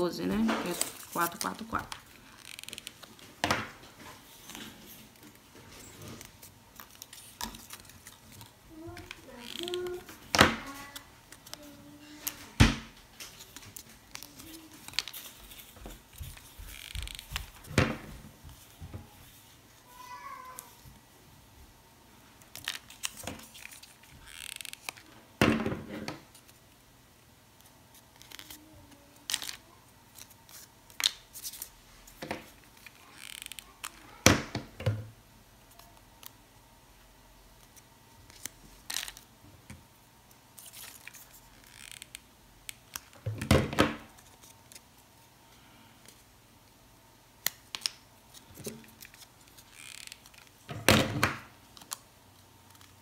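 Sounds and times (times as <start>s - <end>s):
paper rustling and crinkling: 0.0s - 21.0s, 22.4s - 25.1s, 40.5s - 42.2s.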